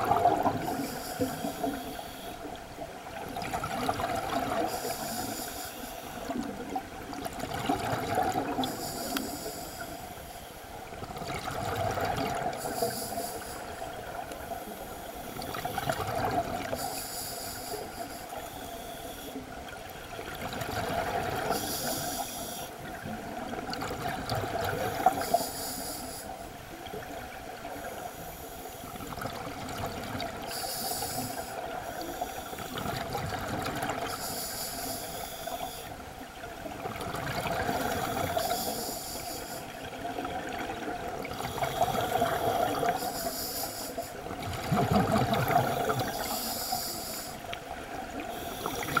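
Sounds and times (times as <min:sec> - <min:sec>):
exhaled bubbles gurgling: 0:00.0 - 0:01.8, 0:02.8 - 0:05.4, 0:06.2 - 0:09.3, 0:11.0 - 0:14.3, 0:15.4 - 0:17.0, 0:20.0 - 0:25.4, 0:28.9 - 0:34.2, 0:36.4 - 0:38.8, 0:39.7 - 0:43.2, 0:44.1 - 0:49.0
regulator breath hiss: 0:00.6 - 0:02.5, 0:04.6 - 0:06.3, 0:08.5 - 0:10.6, 0:12.5 - 0:15.7, 0:16.6 - 0:19.4, 0:21.4 - 0:22.8, 0:24.8 - 0:26.5, 0:27.7 - 0:29.0, 0:30.4 - 0:32.8, 0:34.0 - 0:36.0, 0:37.6 - 0:39.8, 0:41.3 - 0:44.3, 0:45.5 - 0:47.5, 0:48.2 - 0:49.0.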